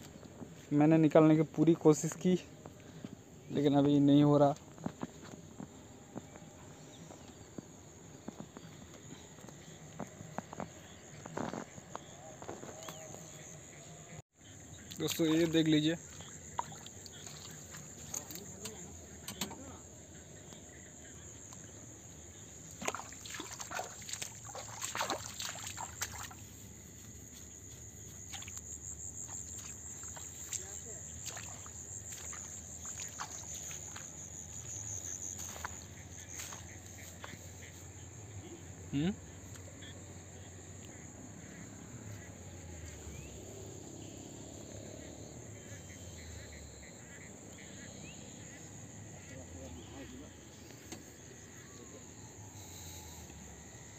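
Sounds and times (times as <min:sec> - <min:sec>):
crickets chirping: 0:00.0 - 0:53.9
footsteps squelching through mud: 0:14.8 - 0:19.0, 0:22.6 - 0:37.9.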